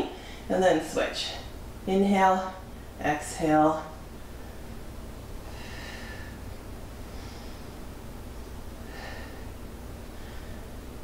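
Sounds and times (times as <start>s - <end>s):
low room hum: 0.0s - 11.0s
woman breathing softly: 0.1s - 0.5s, 5.4s - 11.0s.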